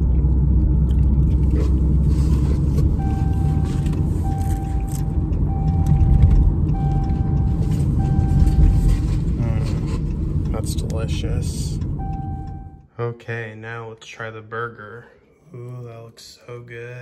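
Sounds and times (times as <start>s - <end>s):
car engine idling: 0.0s - 12.8s
electronic beeps: 3.0s - 8.9s, 12.0s - 12.9s.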